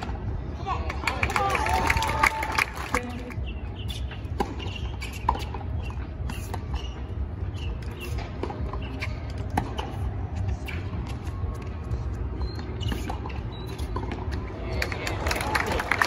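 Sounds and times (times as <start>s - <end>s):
tennis ball bouncing: 3.9s - 14.5s
tennis racket hitting ball: 4.3s - 11.1s.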